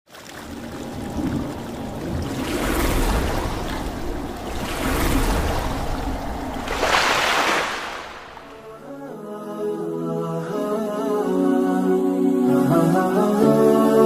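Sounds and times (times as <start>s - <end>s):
water splashing and surging: 0.1s - 9.1s.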